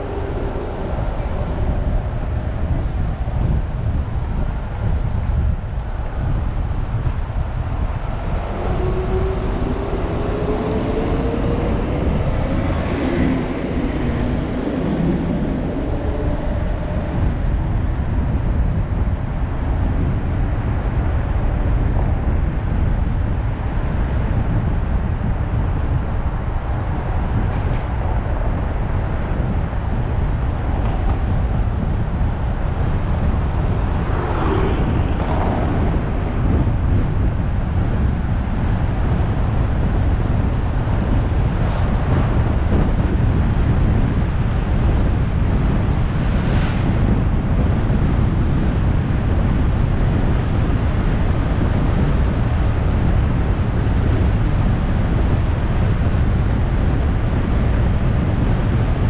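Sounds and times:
road noise: 0.0 - 59.0
car engine accelerating: 32.1 - 48.6.

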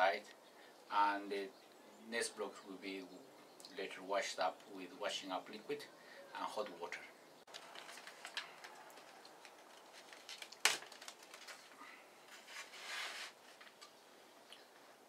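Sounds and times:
scraping rustle: 7.5 - 14.0.

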